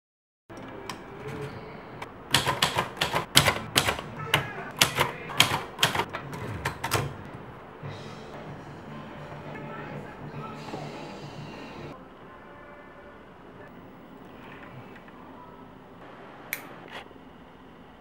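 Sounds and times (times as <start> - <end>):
typewriter keystrokes clacking: 2.3 - 7.2.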